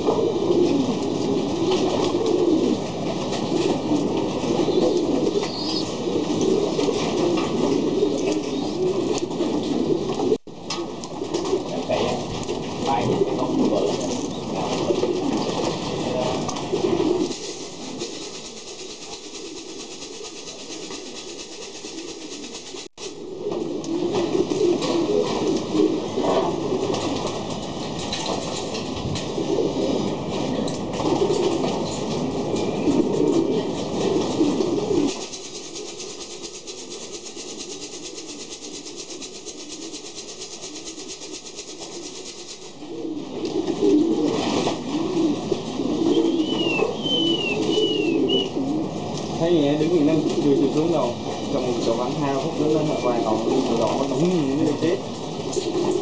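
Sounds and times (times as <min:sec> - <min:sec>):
pigeons cooing: 0:00.0 - 0:56.0
steady background hiss: 0:16.1 - 0:56.0.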